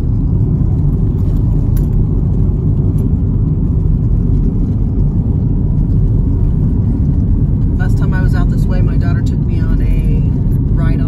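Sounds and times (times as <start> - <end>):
tyre and engine rumble: 0.0 - 11.0.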